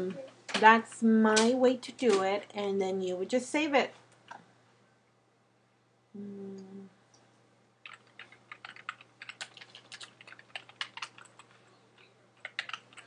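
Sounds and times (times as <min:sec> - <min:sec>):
rapid keyboard typing: 0:07.8 - 0:11.7, 0:12.4 - 0:13.0.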